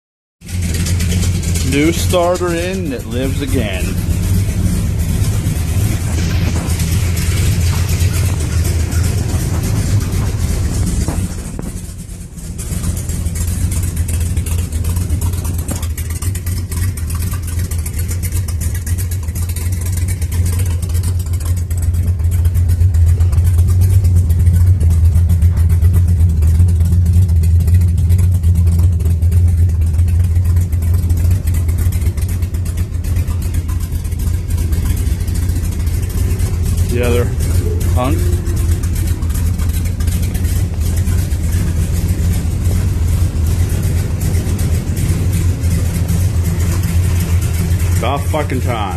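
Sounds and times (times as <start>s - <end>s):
car engine idling: 0.4s - 48.9s.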